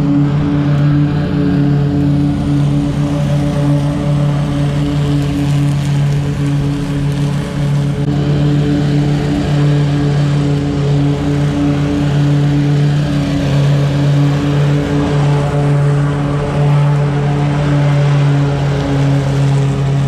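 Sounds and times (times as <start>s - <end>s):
mower engine running: 0.0s - 20.0s.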